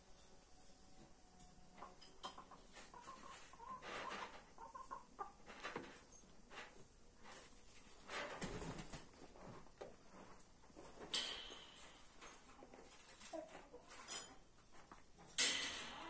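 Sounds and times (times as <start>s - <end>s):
hens clucking: 1.8s - 6.0s.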